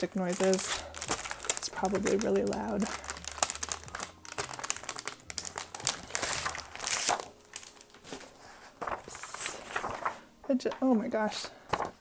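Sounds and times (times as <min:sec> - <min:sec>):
plastic packaging crinkling: 0:00.0 - 0:10.4
paper sliding: 0:08.0 - 0:10.3.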